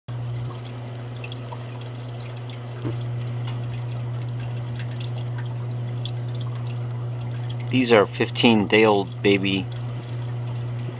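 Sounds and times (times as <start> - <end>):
aquarium air bubbling: 0.1 - 10.9
steady low hum: 0.1 - 10.9
bubbles popping at surface: 0.2 - 7.8.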